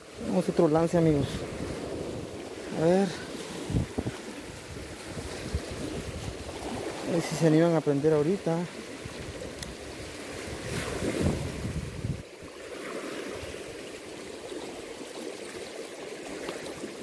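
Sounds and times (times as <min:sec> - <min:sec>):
choppy water splashing: 0:00.0 - 0:17.0
wind buffeting microphone: 0:00.2 - 0:07.5, 0:08.9 - 0:12.3.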